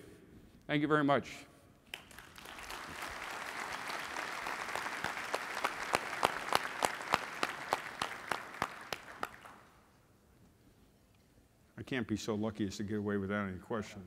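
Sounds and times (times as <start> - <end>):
audience applauding: 1.9 - 9.7
sharp single claps: 4.6 - 9.6.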